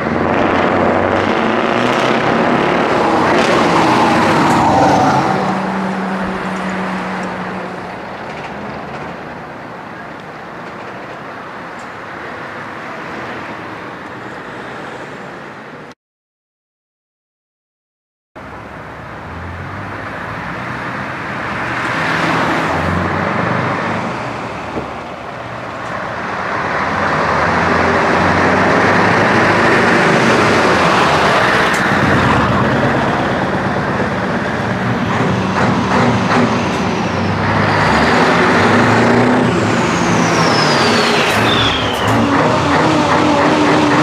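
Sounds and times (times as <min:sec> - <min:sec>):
diesel trucks driving past: 0:00.0 - 0:15.9, 0:18.4 - 0:44.0
high whistle falling in pitch: 0:40.0 - 0:42.2.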